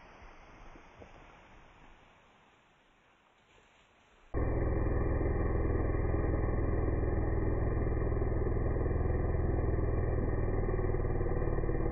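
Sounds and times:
chainsaw cutting log: 4.4 - 11.9.

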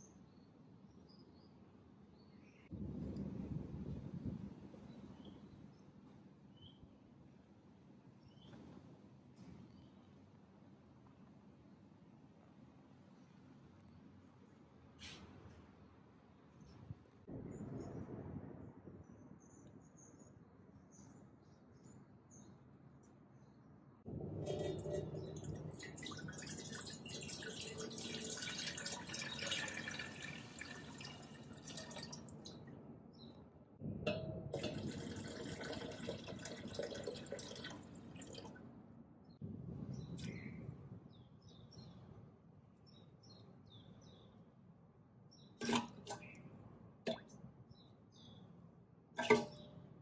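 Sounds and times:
water pouring into steel pot: 24.2 - 32.6, 34.5 - 38.5, 49.2 - 49.6.

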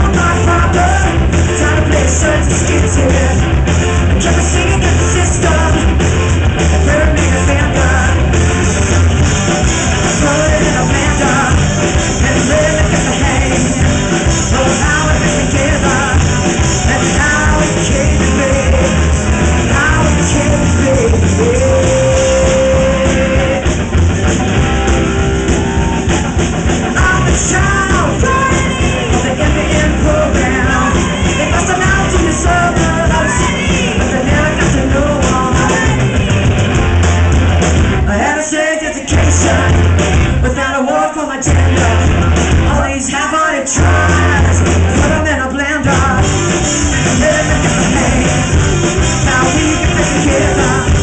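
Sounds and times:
live rock band: 0.0 - 51.0
woman singing into microphone: 27.0 - 36.4.

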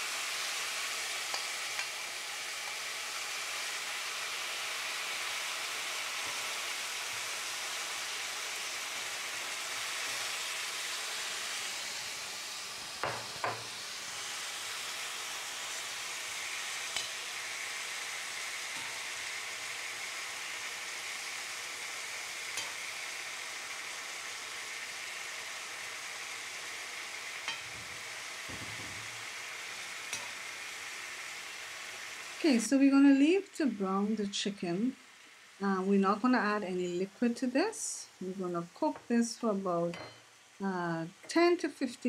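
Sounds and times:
chicken wings sizzling in pot: 0.0 - 42.0.

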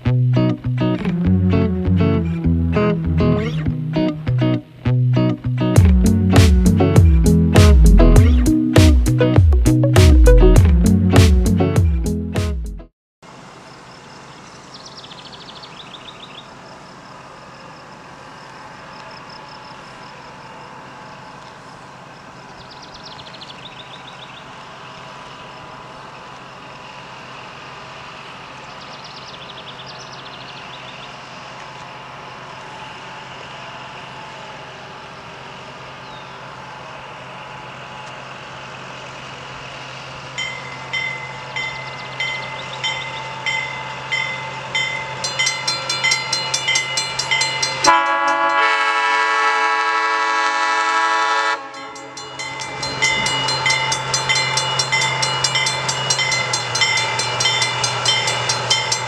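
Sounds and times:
diesel locomotive engine hum: 0.0 - 59.0
locomotive bell ringing: 40.3 - 49.1, 51.5 - 59.0
bird trills: 40.4 - 47.9, 51.8 - 59.0.

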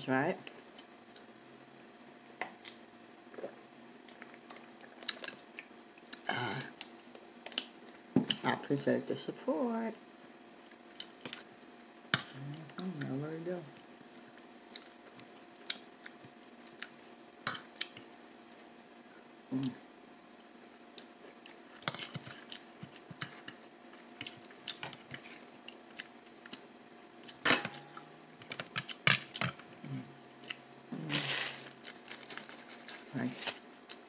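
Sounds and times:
person humming mm: 6.2 - 6.8, 12.2 - 13.1, 19.5 - 19.8, 29.8 - 30.2, 30.9 - 31.6.

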